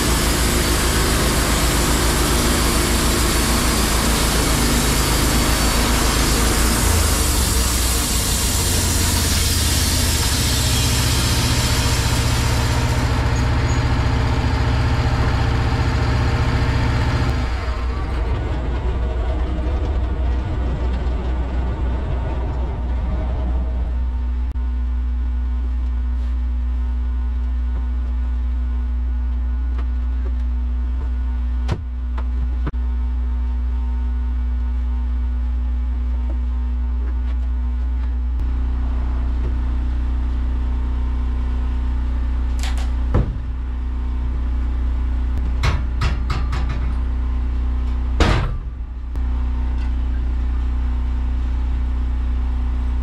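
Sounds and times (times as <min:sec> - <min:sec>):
sawmill engine idling: 0:00.0 - 0:24.5
busy mechanical noise: 0:00.0 - 0:53.0.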